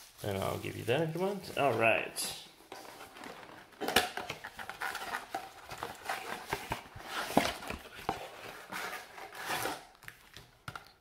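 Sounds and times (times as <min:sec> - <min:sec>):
cardboard clicks and crackles: 0:02.7 - 0:11.0.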